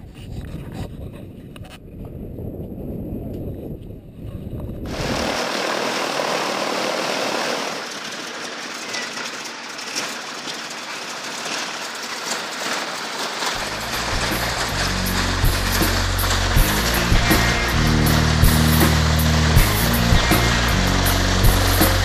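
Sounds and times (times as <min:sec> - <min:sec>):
radial aircraft engine running: 0:04.9 - 0:22.0.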